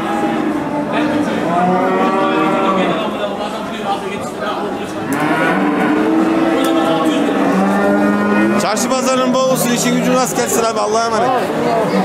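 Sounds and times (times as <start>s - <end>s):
cattle mooing: 0.0s - 3.2s, 5.0s - 10.4s
murmur of voices: 0.0s - 12.0s.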